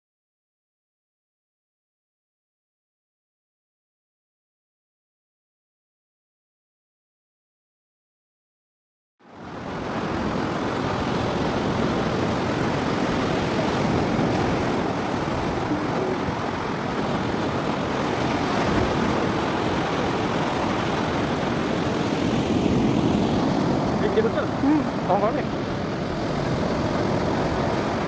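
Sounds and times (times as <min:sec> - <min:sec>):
surf breaking on beach: 0:09.3 - 0:28.0
wind on microphone: 0:09.5 - 0:28.0.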